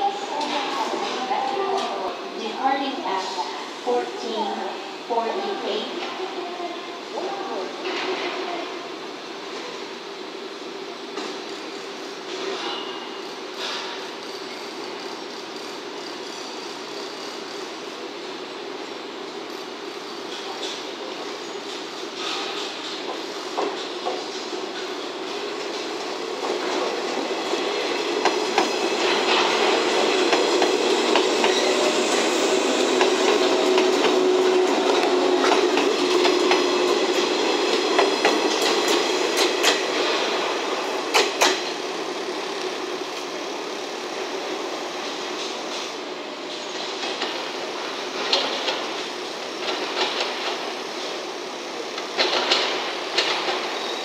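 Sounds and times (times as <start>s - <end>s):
train rail rumble: 21.6s - 51.2s.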